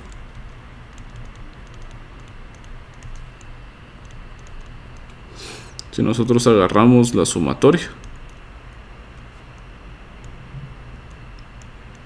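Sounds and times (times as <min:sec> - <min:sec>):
stylus tapping and scratching: 0:00.0 - 0:05.2
steady low hum: 0:00.0 - 0:12.0.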